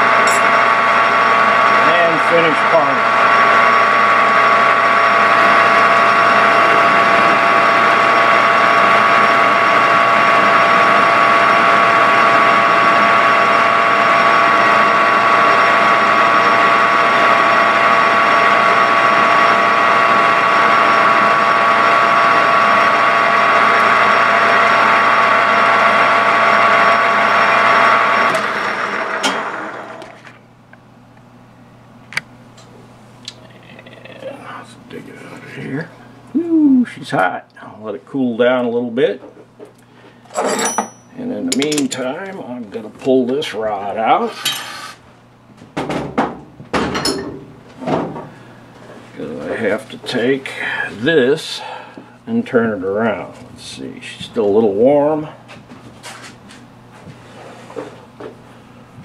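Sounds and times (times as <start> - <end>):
metal lathe whine: 0.0 - 30.4, 40.3 - 45.0.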